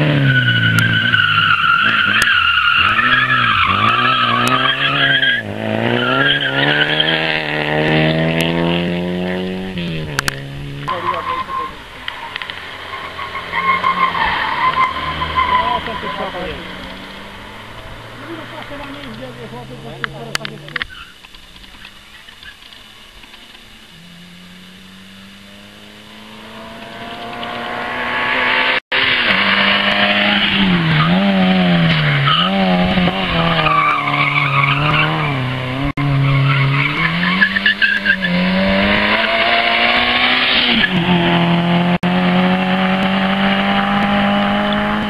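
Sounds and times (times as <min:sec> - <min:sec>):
rally car engine revving: 0:00.0 - 0:45.0
tyres squealing: 0:00.1 - 0:07.2, 0:10.8 - 0:22.6, 0:30.2 - 0:38.4.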